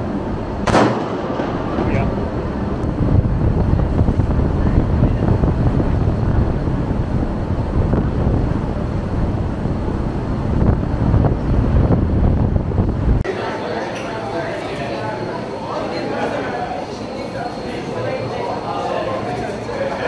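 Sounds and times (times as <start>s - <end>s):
wind buffeting microphone: 0.0s - 13.3s.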